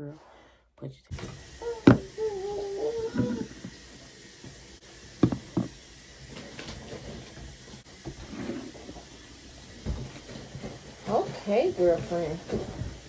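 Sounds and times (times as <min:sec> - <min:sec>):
plastic containers knocking on desk: 0:05.2 - 0:05.8.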